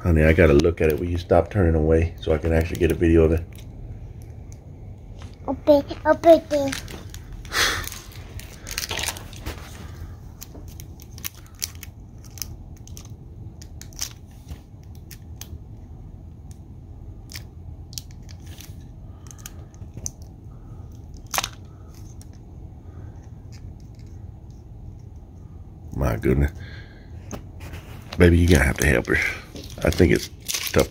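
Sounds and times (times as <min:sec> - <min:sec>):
low steady hum: 0:00.0 - 0:30.9
plastic packaging clicks and crinkles: 0:06.5 - 0:15.6, 0:17.2 - 0:22.4, 0:28.5 - 0:30.9
packaging rustle: 0:06.6 - 0:13.1, 0:27.7 - 0:30.9.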